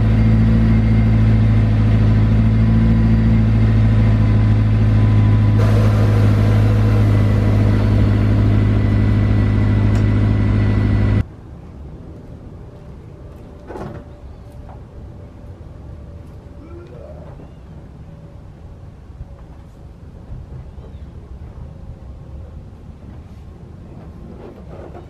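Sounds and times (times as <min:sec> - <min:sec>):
car engine idling: 0:00.0 - 0:11.2
outdoor ambience: 0:00.0 - 0:25.0.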